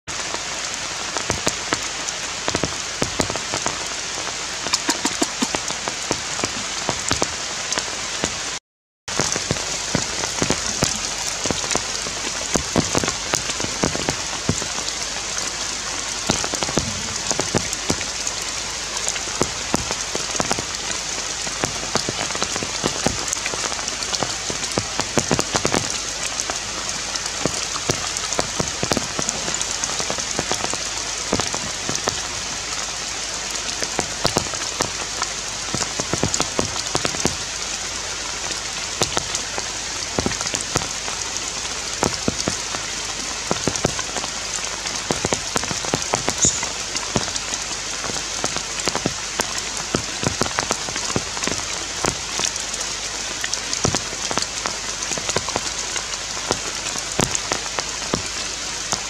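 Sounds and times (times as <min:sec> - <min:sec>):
steady rain falling: 0:00.1 - 0:59.0.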